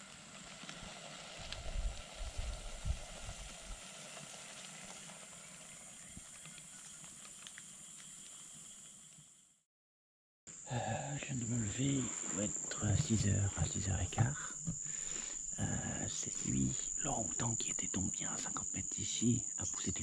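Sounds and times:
campfire crackling and popping: 0.0s - 9.2s
high-pitched rainforest hiss: 0.0s - 9.4s, 10.5s - 20.0s.

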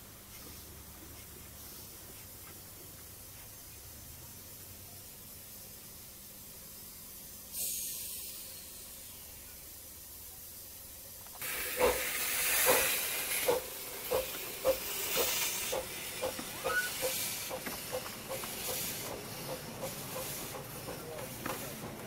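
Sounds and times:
loud steam hiss: 3.9s - 22.0s
steam locomotive exhaust chuffs: 6.8s - 10.2s, 11.4s - 22.0s.

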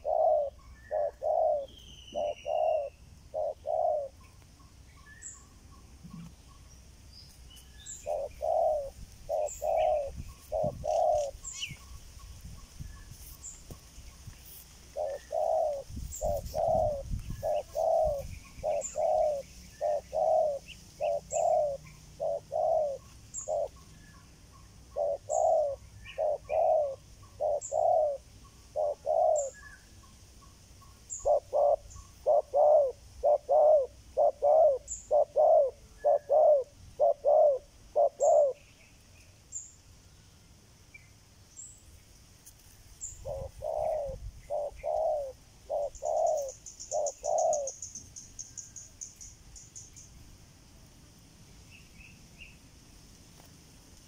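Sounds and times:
doves cooing: 0.0s - 4.4s, 7.9s - 12.0s, 14.9s - 29.7s, 31.2s - 38.6s, 43.2s - 47.9s.

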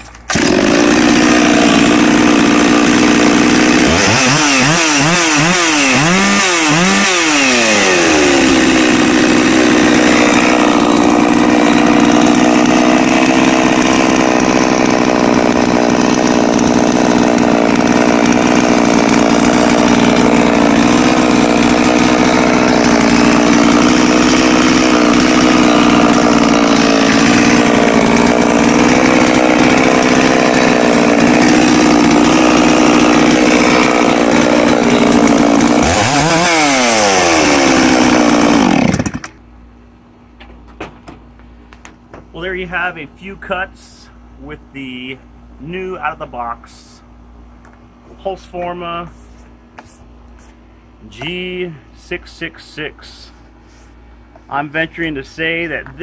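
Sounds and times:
chainsaw revving and idling: 0.1s - 39.4s.

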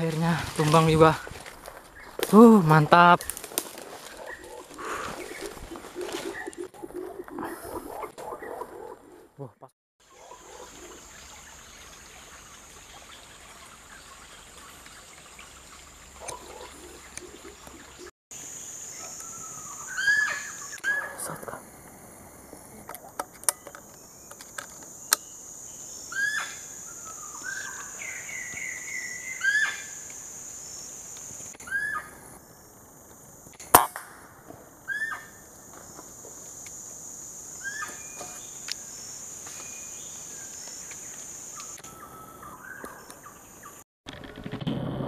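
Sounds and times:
high insect drone: 0.0s - 8.0s, 15.7s - 43.8s
bird calling: 0.5s - 11.4s, 16.2s - 18.1s, 18.9s - 21.5s, 26.0s - 30.0s, 31.6s - 32.2s, 34.9s - 35.4s, 37.6s - 43.8s.

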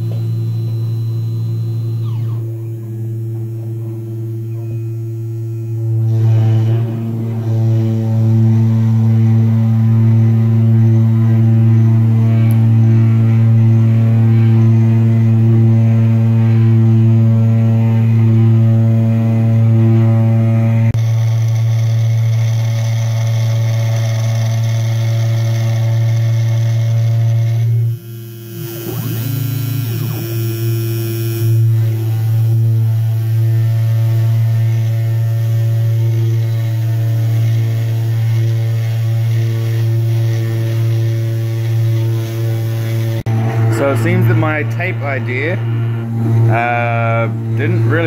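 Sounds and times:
spindle motor humming: 0.0s - 48.0s
rising and falling tones: 27.6s - 48.0s.

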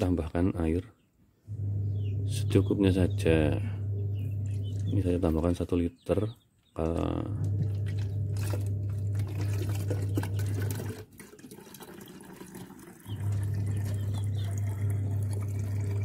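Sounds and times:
steady low hum: 1.4s - 5.7s, 6.9s - 11.0s, 13.2s - 16.0s
water pouring into plastic bottle: 7.4s - 16.0s.

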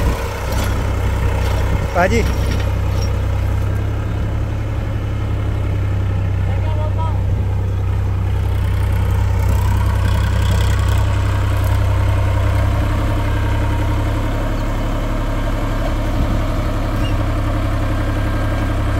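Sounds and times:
tractor diesel engine droning: 0.0s - 18.9s.

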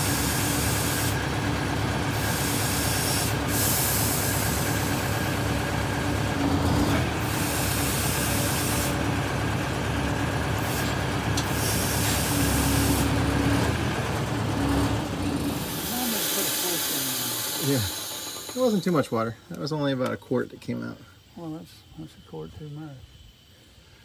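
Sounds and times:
air hiss: 0.0s - 1.3s, 2.1s - 5.7s, 7.2s - 9.0s, 10.6s - 13.2s, 15.4s - 19.9s
diesel engine running: 0.0s - 19.5s.

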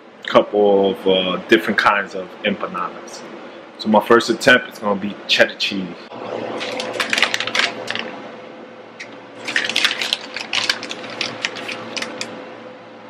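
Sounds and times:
steady low hum: 0.0s - 13.0s
plastic packaging crinkling: 6.6s - 8.1s, 9.4s - 12.4s.

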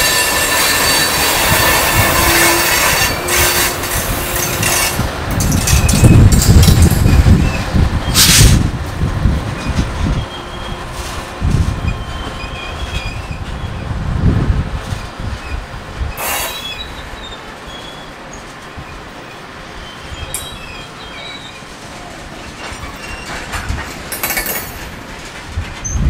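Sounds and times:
locomotive engine rumble: 0.0s - 26.0s
short hissing bursts: 16.2s - 17.0s
faint wheel squeal: 16.2s - 23.5s.

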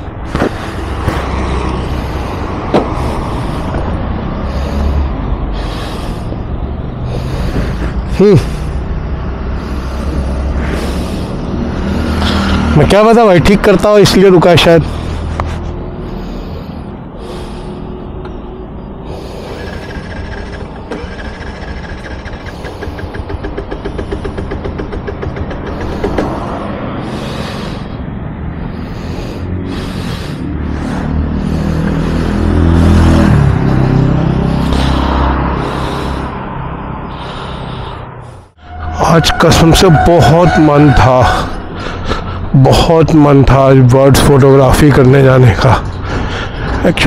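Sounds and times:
road traffic passing: 0.0s - 47.0s
small engine chugging: 19.1s - 26.2s.

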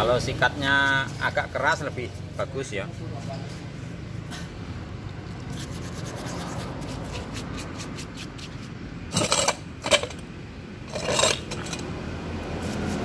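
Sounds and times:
brush scrubbing greasy metal: 5.3s - 10.2s, 10.9s - 11.8s.

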